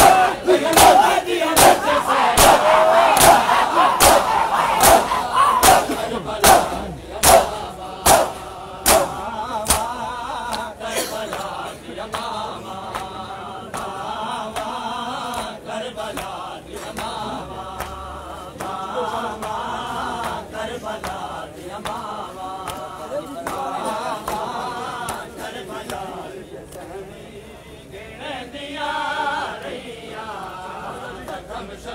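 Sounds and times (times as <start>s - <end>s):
hands beating chests: 0.0s - 9.9s
men chanting in unison: 0.0s - 31.9s.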